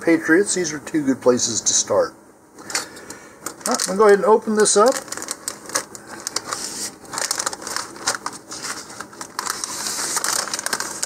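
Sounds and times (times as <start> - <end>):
plastic bag crinkling: 3.4 - 11.0.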